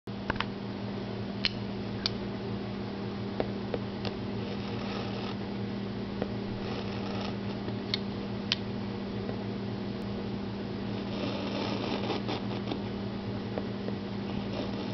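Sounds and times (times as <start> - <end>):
low hum: 0.1 - 14.9
knife scraping a sticker: 11.0 - 12.9.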